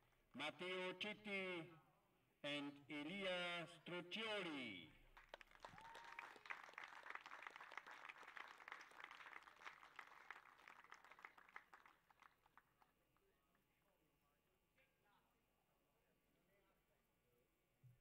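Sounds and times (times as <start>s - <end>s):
audience applause: 5.3s - 12.6s.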